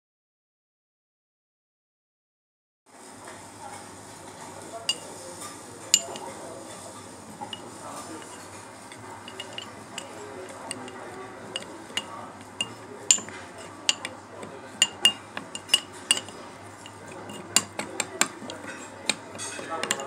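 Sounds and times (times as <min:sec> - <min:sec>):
spoon clinking against bowl: 0:04.9 - 0:20.0
spoon stirring oily mixture: 0:04.9 - 0:20.0.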